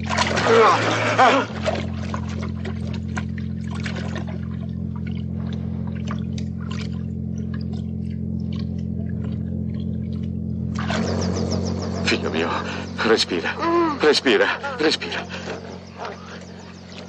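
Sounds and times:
water splashing and dripping: 0:00.0 - 0:10.4
low hum: 0:00.0 - 0:17.0.

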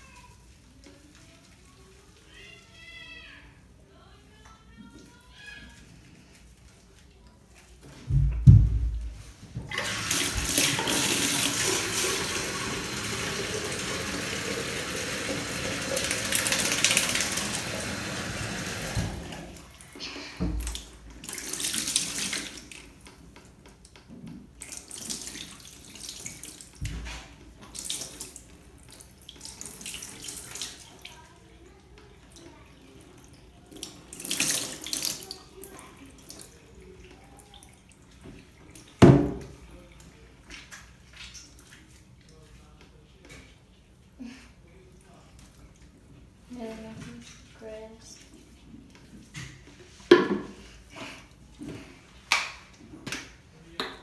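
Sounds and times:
bathtub tap running: 0:08.0 - 0:19.7, 0:20.4 - 0:30.9, 0:37.1 - 0:39.6, 0:50.0 - 0:50.6.

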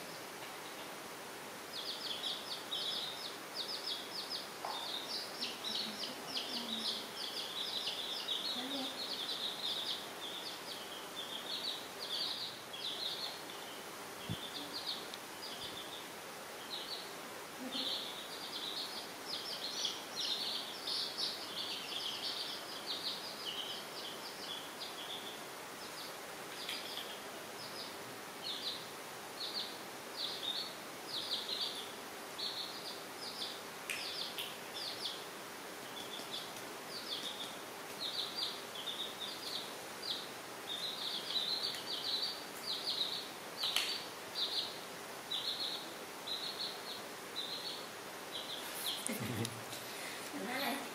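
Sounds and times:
baby chicks peeping: 0:01.6 - 0:49.8.

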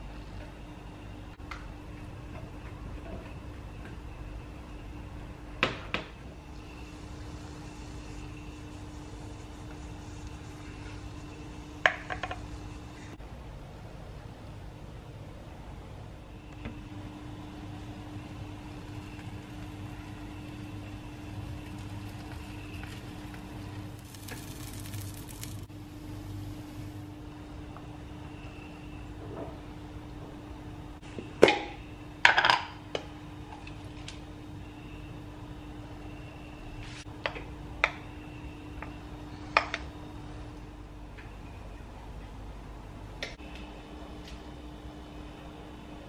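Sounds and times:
low electrical hum: 0:00.0 - 0:46.0.

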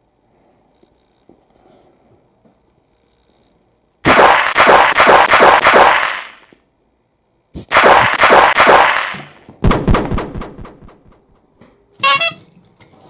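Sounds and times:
deep rumbling thump: 0:09.6 - 0:11.4.

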